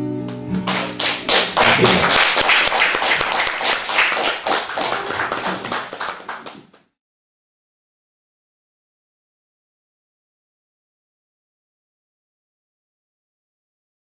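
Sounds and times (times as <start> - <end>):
audience clapping: 0.3 - 6.9.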